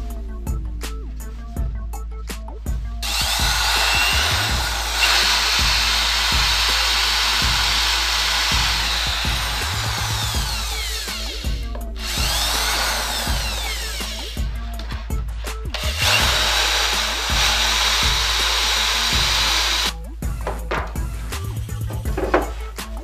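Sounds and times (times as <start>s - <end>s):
background music with beat: 0.0s - 23.0s
electric drill boring: 3.0s - 14.9s, 15.7s - 20.0s
knocks: 20.4s - 21.1s.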